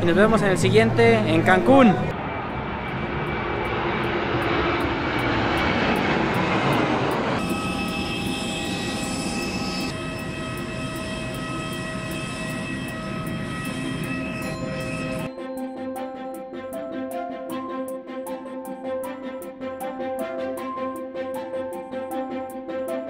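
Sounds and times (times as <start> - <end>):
jet airliner passing overhead: 0.0 - 15.3
high whine of jet engines: 0.0 - 23.0.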